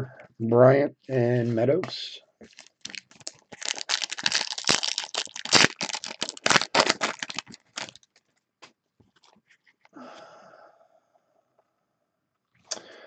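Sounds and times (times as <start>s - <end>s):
foil wrapper tearing and crinkling: 2.4s - 8.3s.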